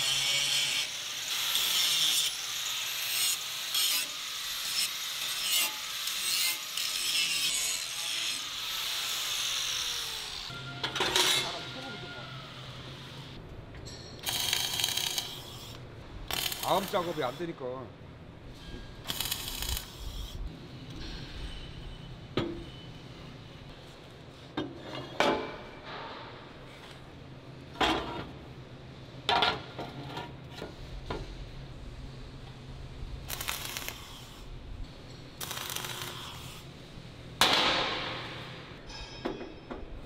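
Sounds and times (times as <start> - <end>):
welding crackle: 14.2 - 17.4, 19.0 - 20.3, 33.2 - 34.5, 35.4 - 36.7.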